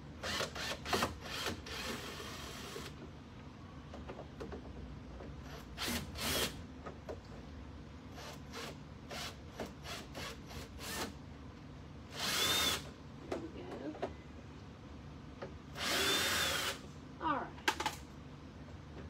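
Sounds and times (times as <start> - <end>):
cordless drill bursts: 12.1 - 12.9, 15.8 - 16.9.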